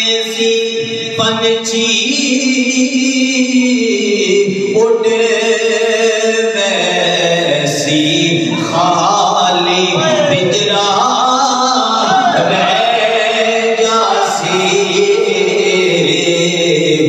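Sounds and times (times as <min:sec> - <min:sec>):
man chanting: 0:00.0 - 0:17.0.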